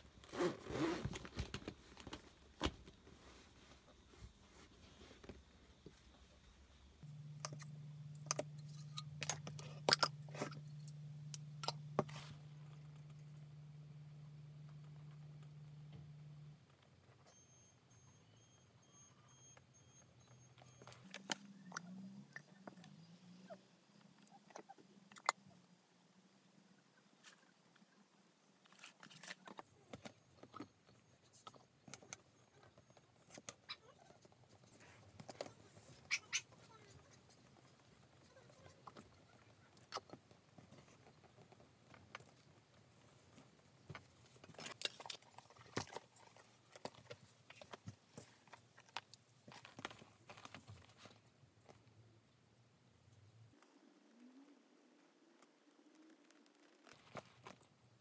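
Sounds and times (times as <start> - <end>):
low hum: 6.8 - 16.9.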